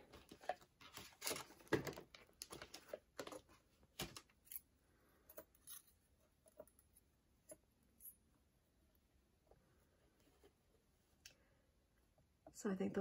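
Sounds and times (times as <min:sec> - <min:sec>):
plastic packaging rustling: 0:00.0 - 0:04.3.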